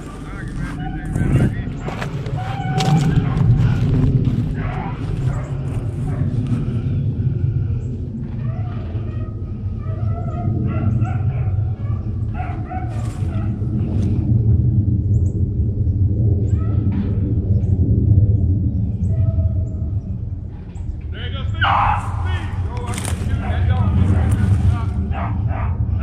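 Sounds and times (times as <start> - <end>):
low rumble: 0.0 - 26.0
hounds baying and yelping: 0.6 - 3.8, 4.5 - 6.8, 8.2 - 13.9, 21.6 - 26.0.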